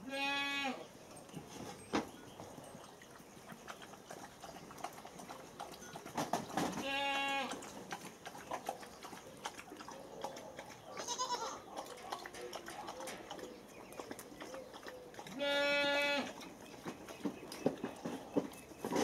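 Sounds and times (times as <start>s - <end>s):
goat bleating: 0.0s - 0.8s, 6.8s - 7.6s, 11.0s - 11.6s, 15.4s - 16.4s
animals scuffling on dirt: 0.0s - 19.0s.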